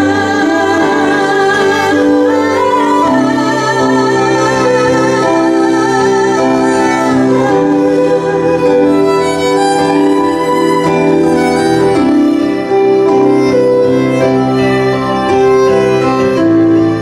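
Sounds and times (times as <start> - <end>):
sustained accompaniment: 0.0 - 17.0
violin playing slow melody: 0.0 - 17.0.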